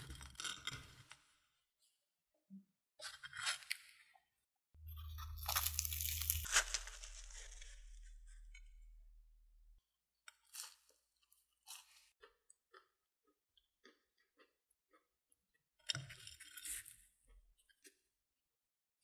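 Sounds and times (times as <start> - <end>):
crisp crust bitten and chewed: 0.0 - 1.3, 4.8 - 9.1, 10.3 - 18.1.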